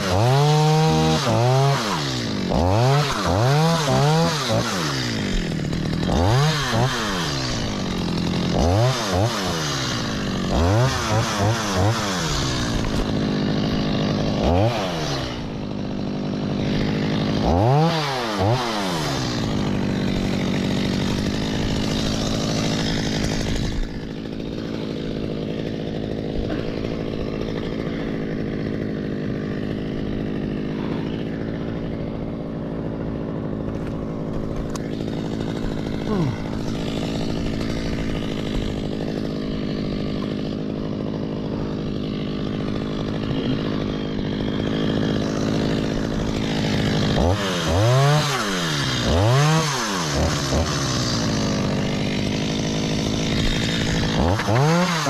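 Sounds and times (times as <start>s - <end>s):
chainsaw idling: 0.0s - 55.0s
chainsaw revving: 0.0s - 55.0s.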